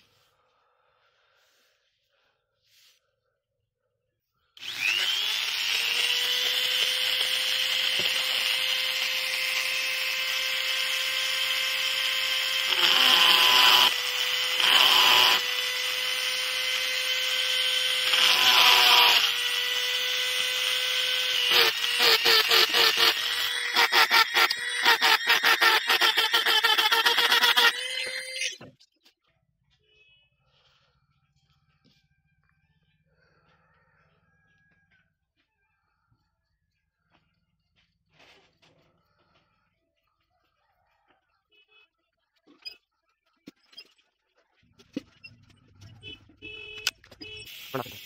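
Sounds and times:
bit grinding into wood: 4.6 - 28.6
rotary tool whining: 4.6 - 28.8.

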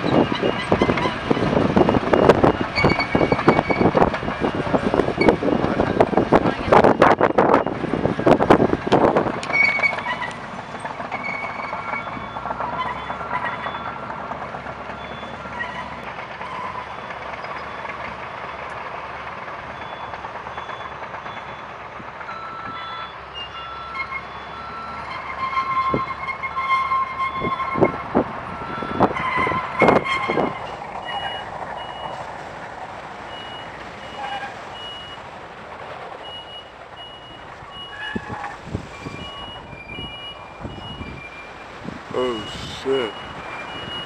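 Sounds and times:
backup alarms beeping: 0.0 - 4.6, 6.6 - 7.8, 10.7 - 14.0, 14.9 - 15.5, 19.7 - 32.2, 33.3 - 35.3, 36.2 - 38.3, 39.0 - 44.0
engines running: 0.0 - 44.0.

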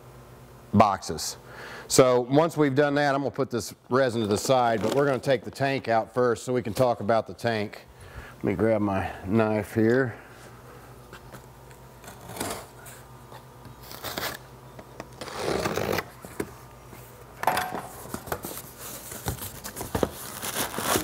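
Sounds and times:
knife slicing packing tape: 13.8 - 14.4.

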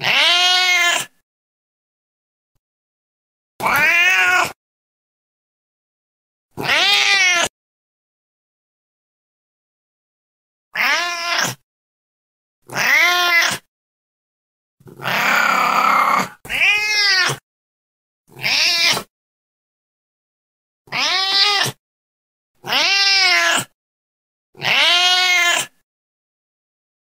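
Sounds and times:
cat meowing: 0.0 - 1.1, 3.6 - 4.6, 6.6 - 7.5, 10.8 - 11.6, 12.7 - 13.7, 14.9 - 17.4, 18.3 - 19.1, 20.9 - 21.8, 22.6 - 23.7, 24.6 - 25.8.

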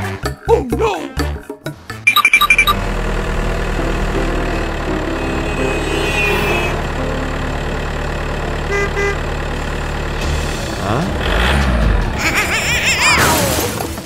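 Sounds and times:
short high tones: 2.1 - 2.8
engine idling: 2.1 - 12.2.

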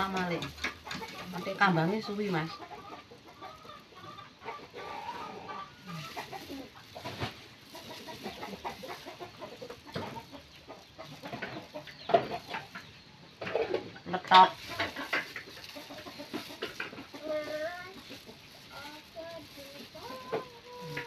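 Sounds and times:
chickens clucking: 0.0 - 21.0.

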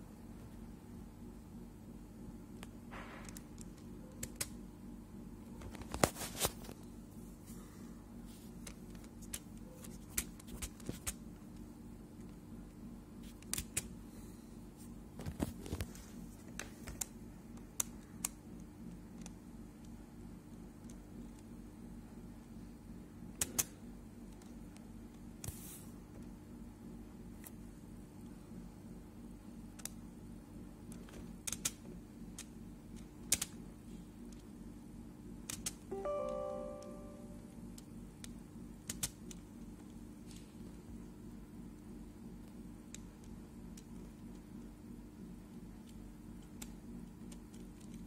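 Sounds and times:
steady low hum: 0.0 - 48.0.

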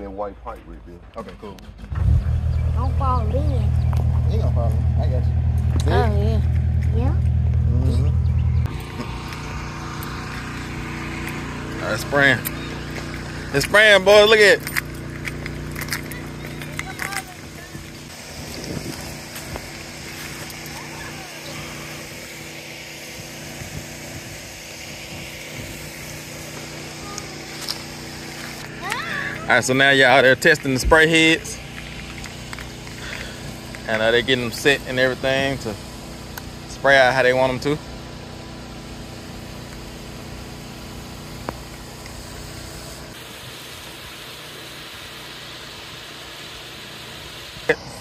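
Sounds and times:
low machine hum: 2.0 - 29.8
sprinklers spraying: 8.6 - 48.0
hiss: 18.1 - 28.6, 39.1 - 48.0.

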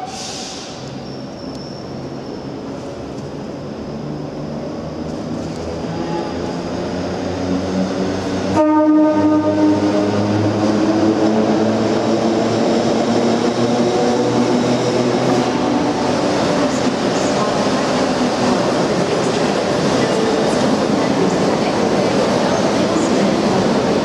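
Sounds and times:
electric train rumbling: 0.0 - 24.0
train horn: 8.5 - 10.2.

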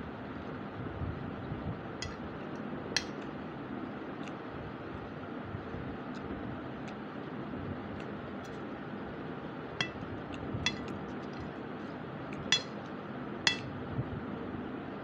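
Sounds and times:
spoon clinking on plate: 2.0 - 2.2, 9.8 - 11.0, 12.4 - 12.8, 13.5 - 13.7.

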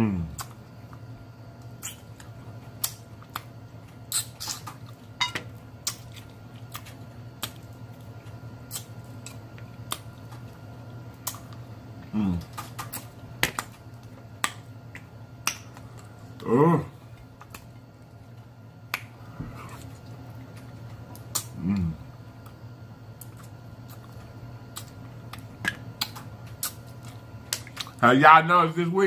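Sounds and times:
person humming: 12.1 - 12.5, 16.4 - 17.0, 21.6 - 22.0
wet mouth smacks chewing: 23.2 - 28.0.

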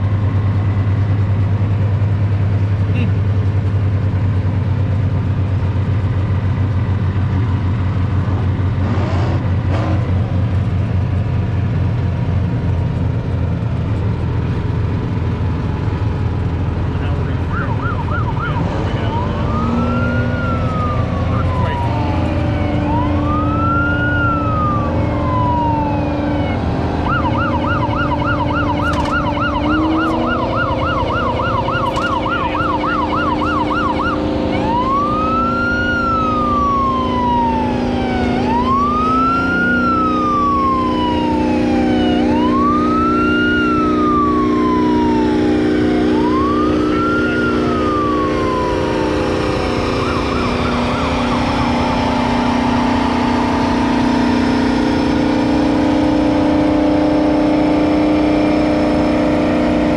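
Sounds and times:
tractor engine running: 10.2 - 58.2
siren wailing and yelping: 17.4 - 55.3.

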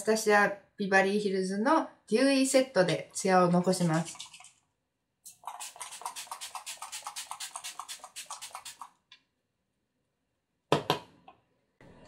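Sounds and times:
spray bottle hissing: 5.3 - 8.9.

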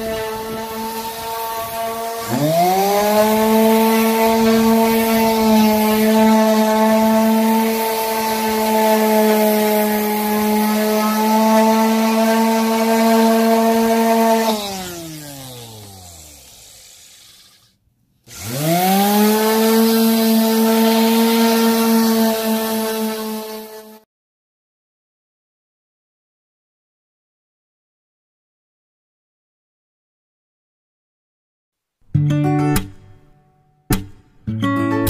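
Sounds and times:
orbital sander running: 0.0 - 17.7, 18.3 - 24.0.

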